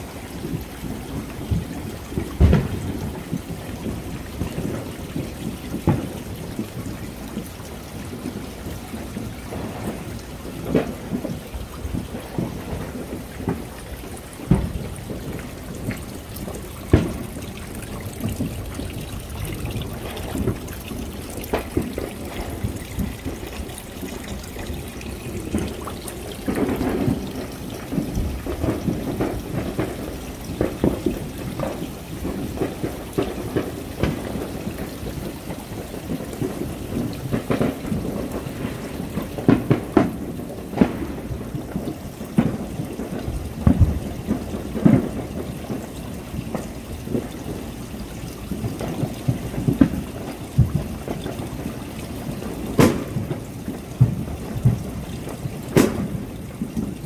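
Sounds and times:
fireworks crackling and banging: 0:00.0 - 0:57.0.

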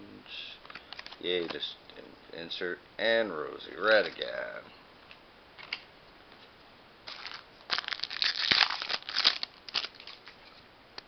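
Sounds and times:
wrapper tearing and crinkling: 0:07.1 - 0:10.4.

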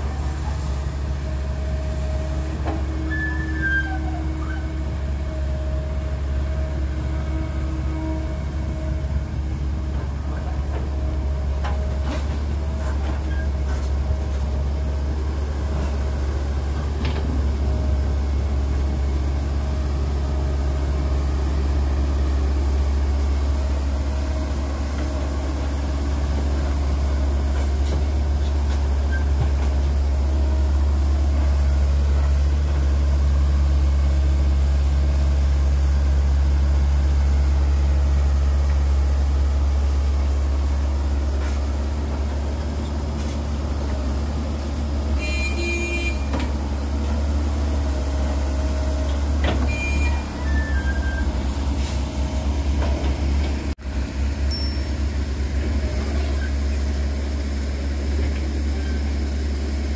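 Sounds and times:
excavator diesel engine drone: 0:00.0 - 0:59.9.

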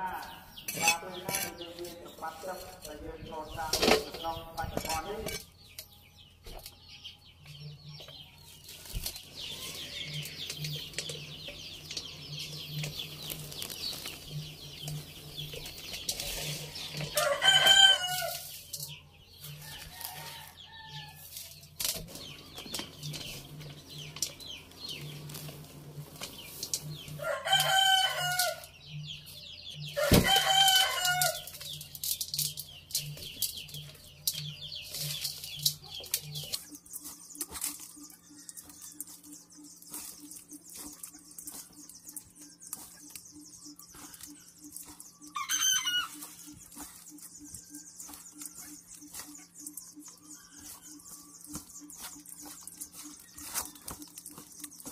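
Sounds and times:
rooster crowing: 0:17.0 - 0:18.5, 0:19.7 - 0:21.2, 0:27.2 - 0:28.7, 0:30.0 - 0:31.5, 0:45.4 - 0:46.3.

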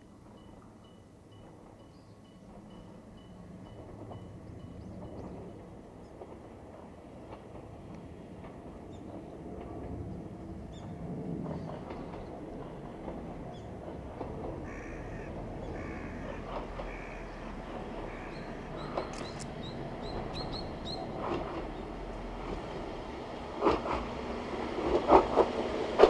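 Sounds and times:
distant railcar rumble: 0:00.0 - 0:26.0
crow cawing: 0:14.6 - 0:19.0.

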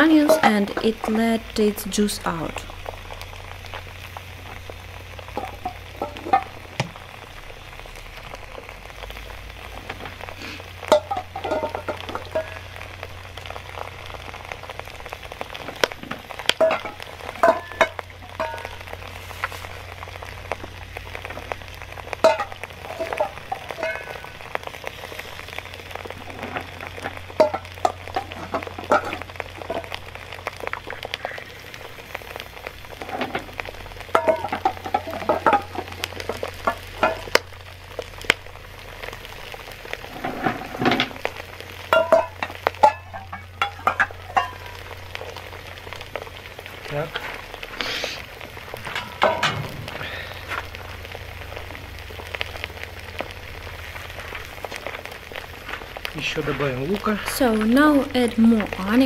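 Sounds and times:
stones clacking in iron pot: 0:00.0 - 0:01.3, 0:04.5 - 0:07.1, 0:09.1 - 0:59.0
meat and onions sizzling: 0:00.0 - 0:59.0.

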